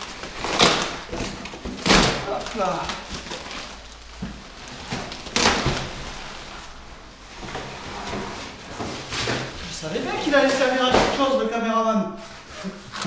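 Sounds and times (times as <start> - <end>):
crackling thump: 0.0 - 6.7
cardboard and bubble wrap rustling: 0.0 - 11.6, 12.2 - 13.0.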